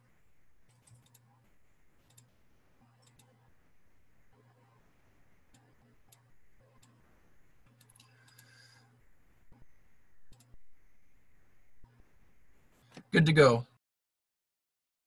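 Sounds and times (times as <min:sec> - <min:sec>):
low electrical hum: 0:00.0 - 0:13.8
computer mouse clicks: 0:00.6 - 0:01.4, 0:02.0 - 0:03.5, 0:05.5 - 0:08.9, 0:09.5 - 0:10.6.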